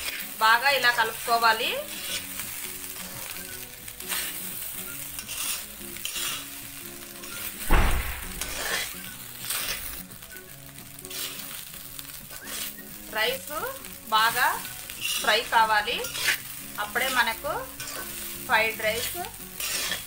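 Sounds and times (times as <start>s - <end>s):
spatula scraping a pan: 0.0s - 7.6s, 8.4s - 10.0s, 10.6s - 20.0s
food sizzling in oil: 0.0s - 20.0s
loud knock: 7.7s - 8.5s.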